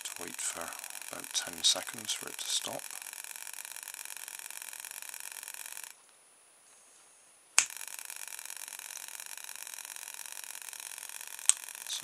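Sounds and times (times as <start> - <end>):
toothbrush motor buzzing: 0.0 - 6.0, 7.6 - 12.0
sharp click: 7.6 - 7.8, 11.4 - 12.0.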